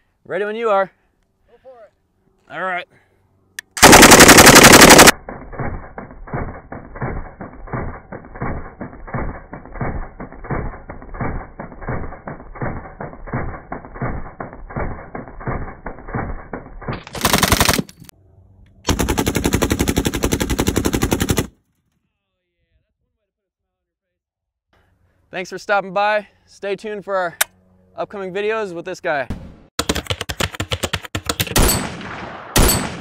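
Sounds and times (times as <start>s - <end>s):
slowed-down gunfire: 3.7s - 17.9s, 18.9s - 21.6s
machine gun firing bursts: 3.8s - 17.9s, 18.9s - 21.6s, 31.4s - 33.0s.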